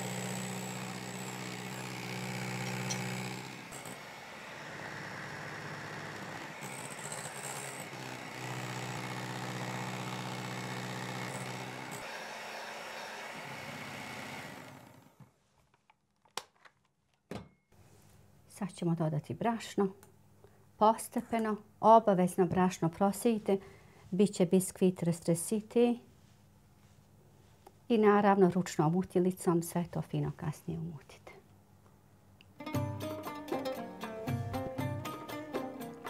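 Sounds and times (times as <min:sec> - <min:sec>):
electric hand mixer running: 0:00.0 - 0:15.1.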